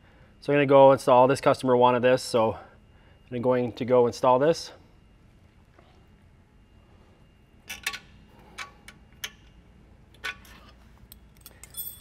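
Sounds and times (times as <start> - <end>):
small parts and tools clicking: 10.1 - 12.0.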